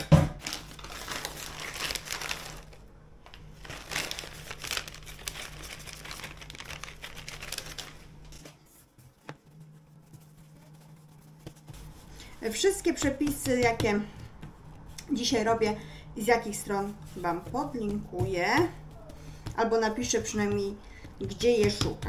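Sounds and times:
plastic packaging crinkling: 0.4s - 8.6s.

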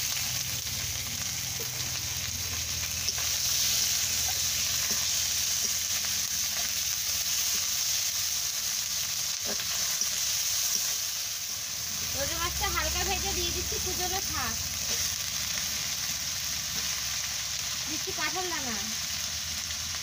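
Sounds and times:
fish sizzling in hot oil: 0.0s - 20.0s
metal spatula scraping: 2.5s - 6.8s.

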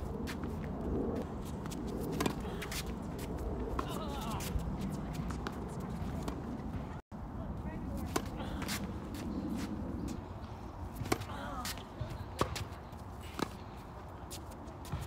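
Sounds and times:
tennis ball bouncing on court: 1.6s - 2.9s, 8.0s - 9.7s, 10.9s - 13.6s
tennis ball hitting racquet: 1.6s - 6.8s, 8.0s - 9.7s, 10.9s - 13.6s.

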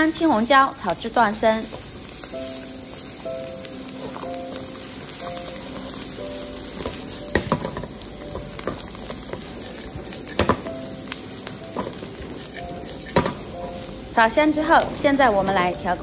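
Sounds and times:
food sizzling in hot oil: 0.0s - 16.0s
spatula clacking against wok: 11.8s - 13.6s.

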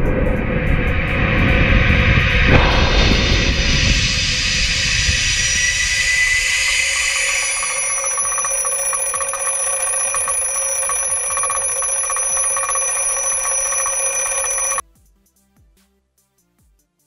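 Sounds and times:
alarm clock bells ringing: 2.9s - 14.8s.

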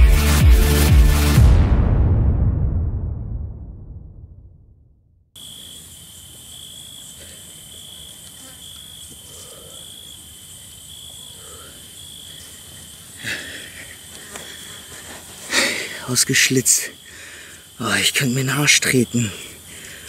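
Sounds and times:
background music: 0.0s - 2.2s
crickets chirping: 5.4s - 20.0s
insect trill: 5.4s - 20.0s.

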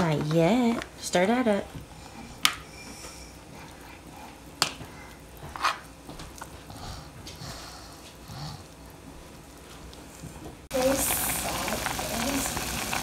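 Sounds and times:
spatula stirring in plastic bowl: 4.3s - 6.6s.

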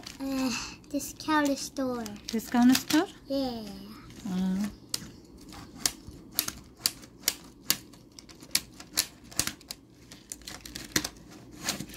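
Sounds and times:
toy cars clicking on wood: 0.9s - 3.1s.

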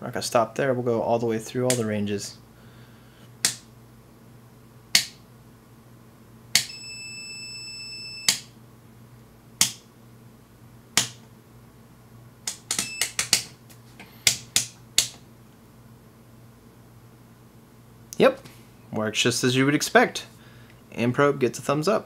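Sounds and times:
short beeps: 6.7s - 8.4s
steady high beep: 6.7s - 8.4s.

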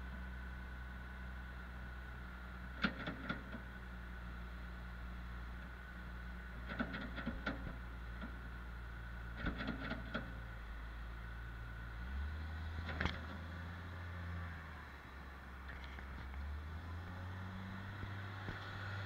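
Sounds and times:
loader bucket knocks and clanks: 6.6s - 8.4s, 9.4s - 10.4s.

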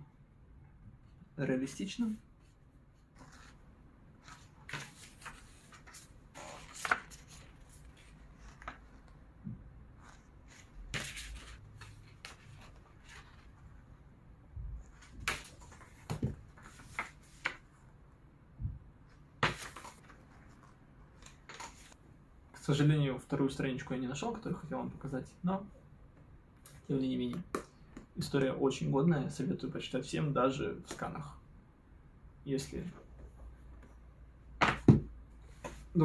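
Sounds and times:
book pages rustling: 3.0s - 3.6s, 4.2s - 9.2s, 10.0s - 13.7s, 14.9s - 17.6s, 19.4s - 22.0s.

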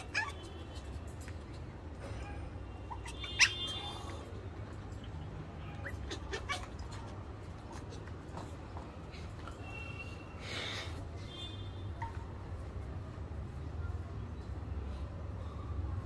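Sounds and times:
puppy whimpering: 0.0s - 0.4s, 2.9s - 4.0s, 5.7s - 7.2s
puppy yipping: 0.0s - 0.8s, 2.2s - 4.3s, 5.6s - 7.2s.

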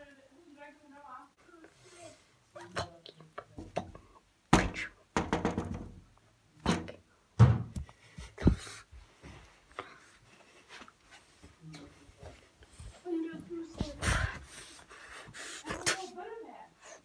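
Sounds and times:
dull knocks and thuds: 4.5s - 6.0s, 6.7s - 8.6s.

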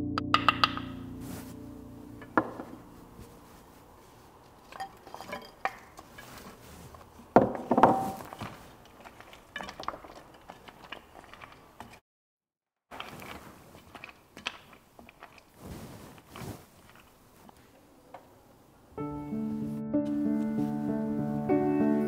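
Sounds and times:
spoon stirring thick food: 4.0s - 7.4s, 8.1s - 12.0s, 12.9s - 17.8s
spoon scraping iron pan: 4.6s - 7.1s.

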